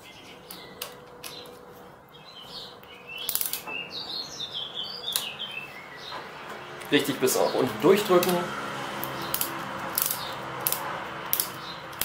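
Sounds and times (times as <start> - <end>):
small birds chirping: 0.0 - 12.0
wrench clicking on metal: 9.0 - 12.0.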